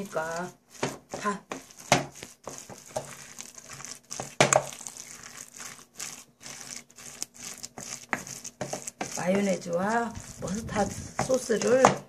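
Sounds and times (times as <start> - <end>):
spatula scraping in metal bowl: 0.0 - 12.0.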